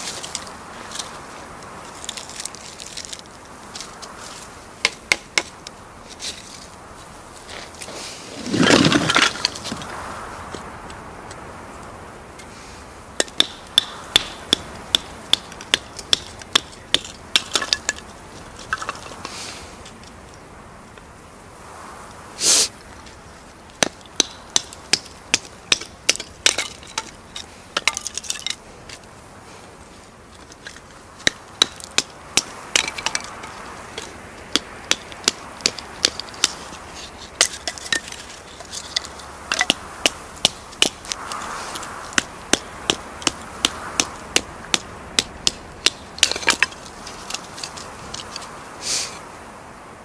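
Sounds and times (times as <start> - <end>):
sticks cracking apart: 1.9 - 4.2.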